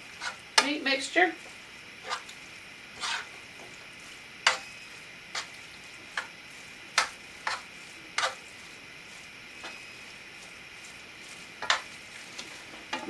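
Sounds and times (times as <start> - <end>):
utensil scraping a skillet: 0.0 - 13.0.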